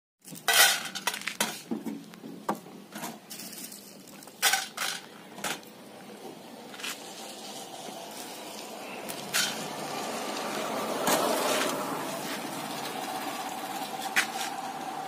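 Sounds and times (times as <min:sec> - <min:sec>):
steel bowls and utensils clattering: 0:03.0 - 0:05.7, 0:09.1 - 0:09.7.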